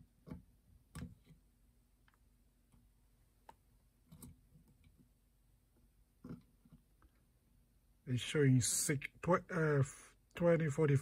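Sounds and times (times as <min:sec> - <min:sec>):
faint clicks and taps: 0:02.0 - 0:05.1.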